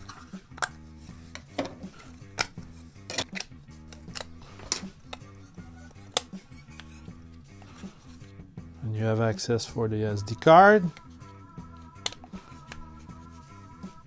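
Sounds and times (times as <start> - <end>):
background music: 0.0 - 14.0
plastic case clicking: 12.0 - 12.8.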